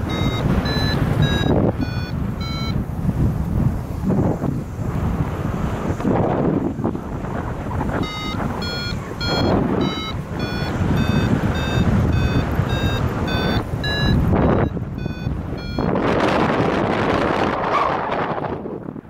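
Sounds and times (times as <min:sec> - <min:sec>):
variometer short beeps: 0:00.0 - 0:02.8, 0:08.0 - 0:16.4
wind rushing over microphone: 0:00.0 - 0:19.0.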